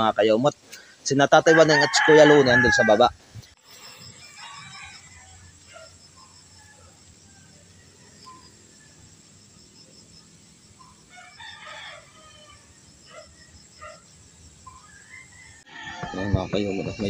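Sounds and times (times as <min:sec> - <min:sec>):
rooster crowing: 0:01.4 - 0:03.1, 0:03.8 - 0:09.2, 0:11.0 - 0:13.9, 0:14.7 - 0:17.0.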